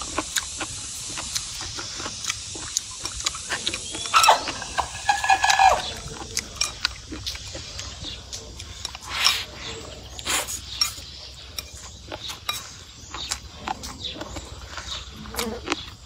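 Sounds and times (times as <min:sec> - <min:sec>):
steady hiss: 0:00.0 - 0:07.0
wet chewing and lip-smacking: 0:00.0 - 0:16.0.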